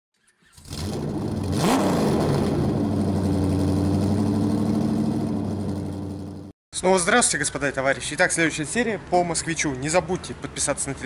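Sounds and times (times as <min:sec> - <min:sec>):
car engine running and revving: 0:00.6 - 0:06.5.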